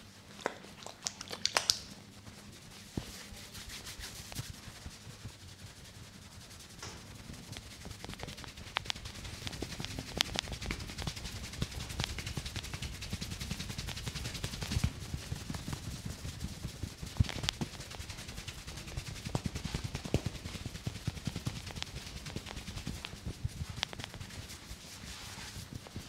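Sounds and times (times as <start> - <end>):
sharp snaps: 0.4 - 1.9, 7.6 - 14.9
fingers rubbing through hair: 0.4 - 26.0.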